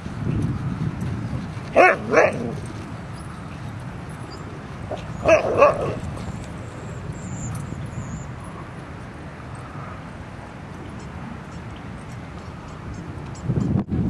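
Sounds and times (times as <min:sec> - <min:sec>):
dog barking: 0:01.8 - 0:02.6, 0:04.9 - 0:06.0.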